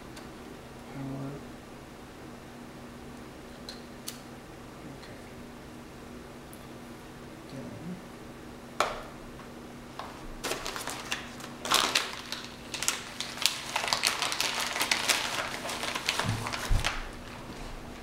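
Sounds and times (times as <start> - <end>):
paper envelope rustling: 10.4 - 17.6.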